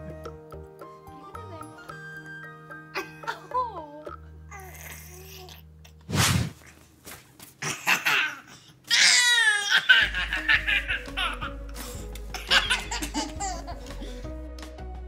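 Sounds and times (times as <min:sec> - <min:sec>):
background music: 0:00.0 - 0:06.4, 0:09.0 - 0:15.0
baby laughing: 0:07.6 - 0:11.7, 0:12.3 - 0:14.1.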